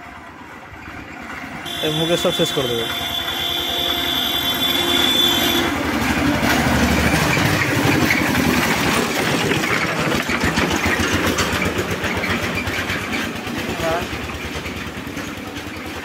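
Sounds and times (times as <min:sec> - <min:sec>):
utility vehicle engine chugging: 0:00.0 - 0:16.0.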